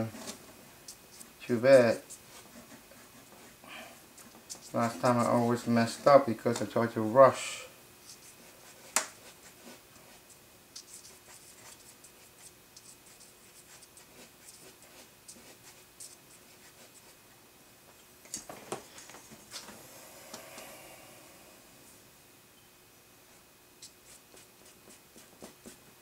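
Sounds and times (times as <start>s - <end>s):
eraser rubbing on paper: 0.0s - 6.3s, 8.0s - 17.2s, 23.8s - 25.8s.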